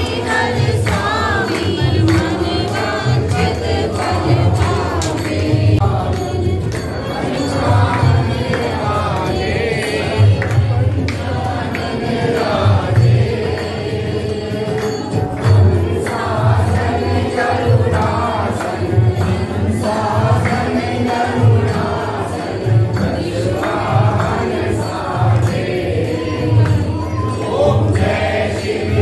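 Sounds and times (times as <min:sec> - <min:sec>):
group singing a hymn: 0:00.0 - 0:29.0
percussive beat: 0:00.0 - 0:29.0.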